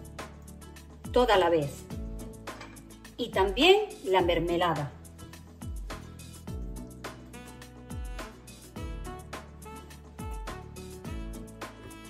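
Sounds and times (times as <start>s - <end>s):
held instrumental notes: 6.6s - 12.0s.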